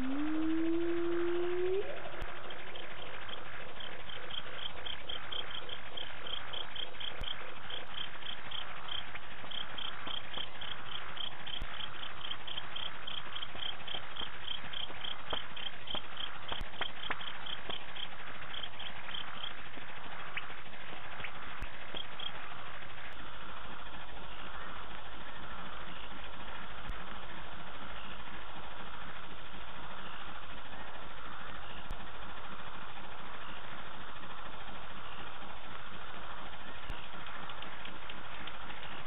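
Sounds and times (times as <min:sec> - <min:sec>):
cricket chirping: 0:00.0 - 0:22.9
insects humming: 0:00.0 - 0:39.0.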